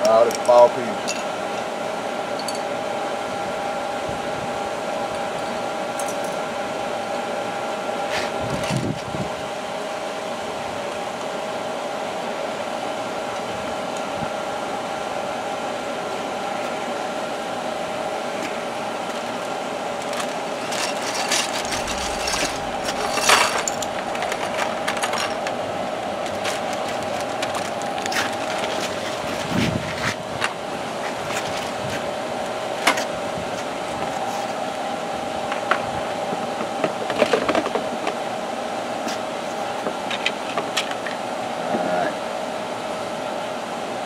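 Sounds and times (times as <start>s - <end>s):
machine hum: 0.0s - 43.6s
plastic parts clicking and rustling: 20.0s - 25.6s, 26.2s - 29.0s, 36.8s - 38.2s.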